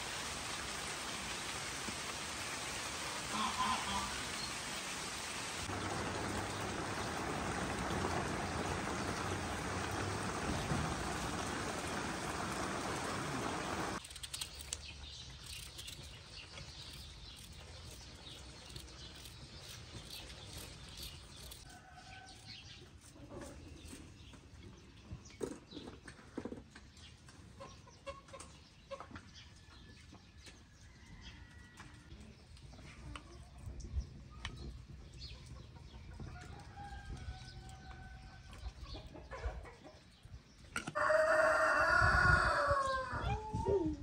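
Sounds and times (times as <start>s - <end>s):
rain falling through leaves: 0.0s - 19.6s
small birds chirping: 12.8s - 26.0s.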